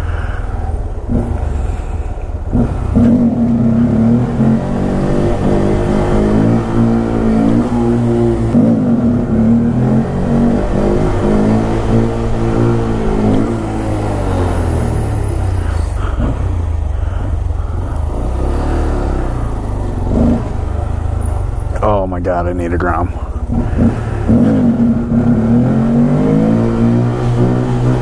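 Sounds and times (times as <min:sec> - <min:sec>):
small motorcycle engine revving: 0:01.0 - 0:21.6.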